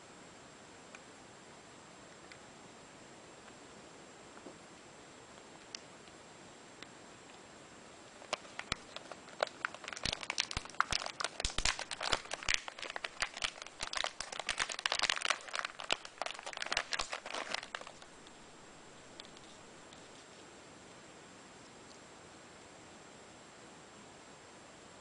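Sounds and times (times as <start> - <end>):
plastic pouch crinkling: 8.2 - 20.3.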